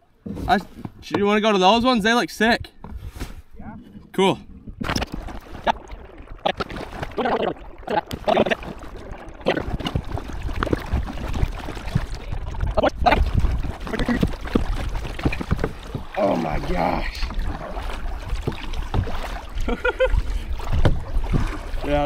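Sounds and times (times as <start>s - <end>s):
paddle strokes and water splashing: 2.8s - 22.0s
wind rumble on microphone: 9.6s - 16.0s.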